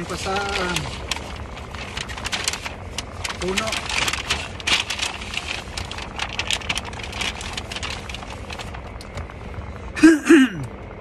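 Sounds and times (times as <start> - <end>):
paper bag crinkling: 0.0 - 9.3
low hum inside car: 0.0 - 11.0
man's short vocal sounds: 10.0 - 10.7.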